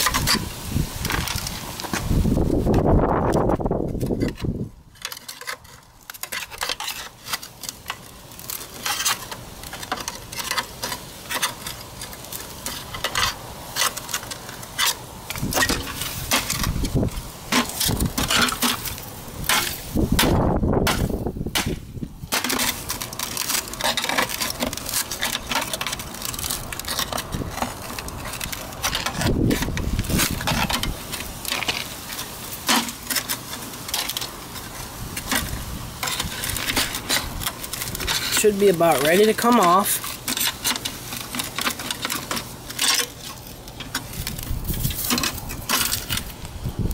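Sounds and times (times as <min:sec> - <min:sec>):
pry bar scraping and clanking metal: 0:00.0 - 0:02.0, 0:02.7 - 0:46.4.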